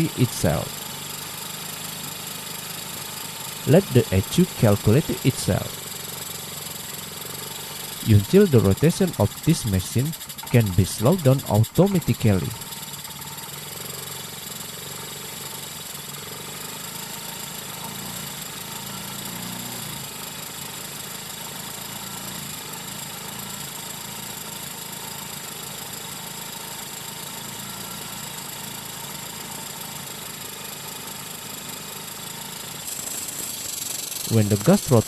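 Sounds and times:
scooter engine idling: 5.7 - 8.0, 12.6 - 19.4.

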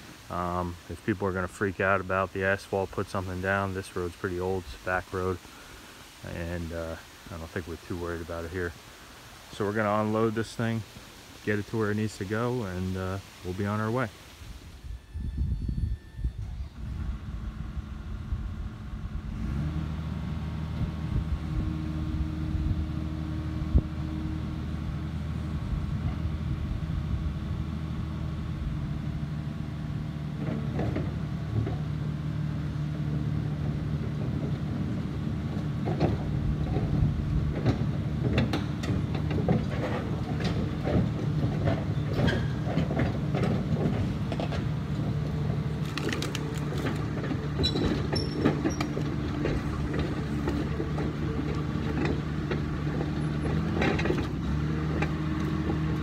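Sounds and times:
bulldozer diesel engine running: 14.8 - 56.0
steel tracks clanking and squeaking: 35.7 - 45.6, 46.8 - 56.0.

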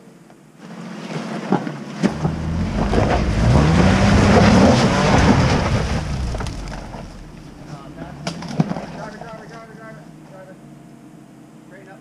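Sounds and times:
tyres knocking over rock: 1.3 - 9.5
car engine revving: 2.0 - 10.8.

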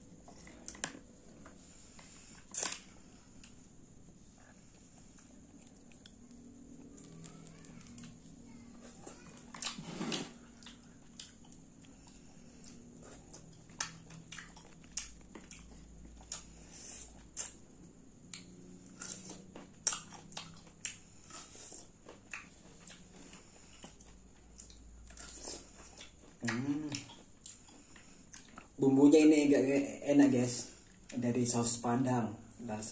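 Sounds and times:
chewing with clicks and smacks: 4.4 - 8.2, 10.5 - 28.8.

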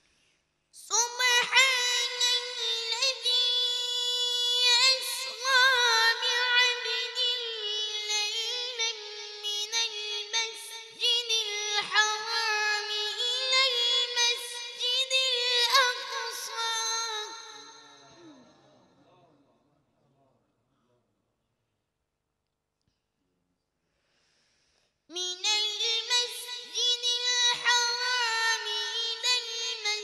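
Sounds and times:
melodic recitation by high voice: 0.8 - 18.8, 25.1 - 30.0.

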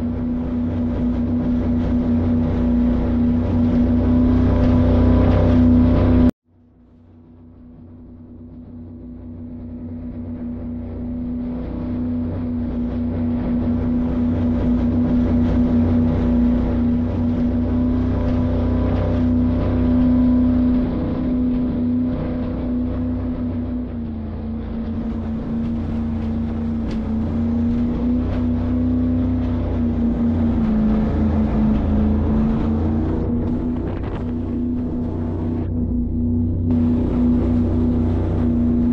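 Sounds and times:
motor humming: 14.1 - 38.9.

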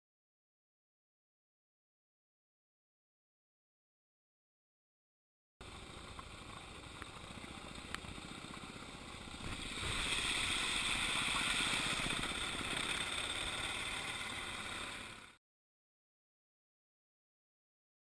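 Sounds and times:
motorcycle engine running: 5.6 - 15.4
water splashing: 9.3 - 14.9.

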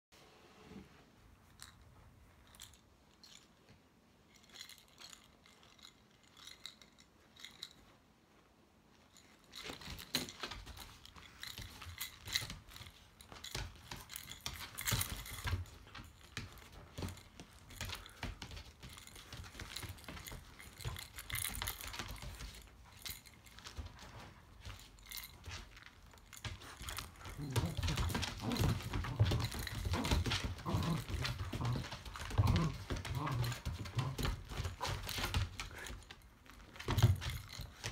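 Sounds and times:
scuffs and knocks of dog playing: 9.0 - 37.9
dog claws clicking on wooden floor: 9.6 - 37.9.

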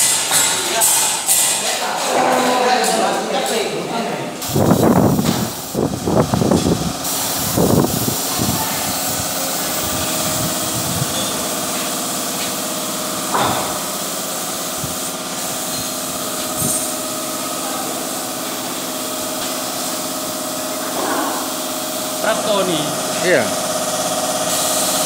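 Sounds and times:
air compressor humming: 4.4 - 25.0
paint spray gun hissing: 4.4 - 25.0.

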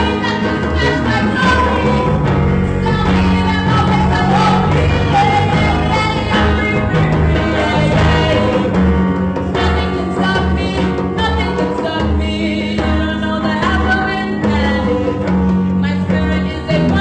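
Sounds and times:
electric bass guitar low notes: 0.0 - 10.9
band playing instrumental: 0.0 - 17.0.

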